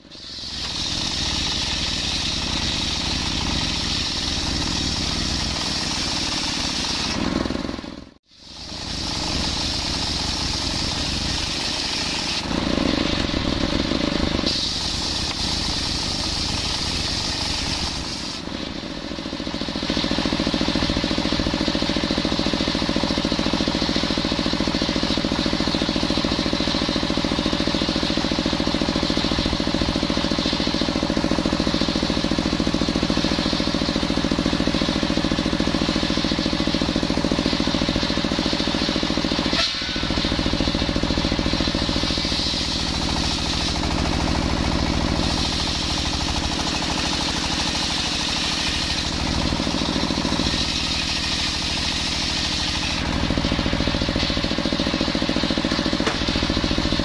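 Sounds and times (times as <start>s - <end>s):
circular saw hissing through wood: 0.0s - 57.0s
diesel engine chugging: 0.0s - 57.0s.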